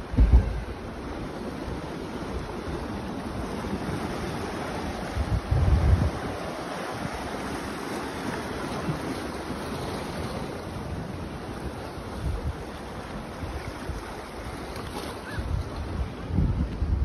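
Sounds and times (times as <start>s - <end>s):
wind buffeting microphone: 0.0s - 7.6s, 11.2s - 17.0s
surf washing against rocks: 0.0s - 17.0s.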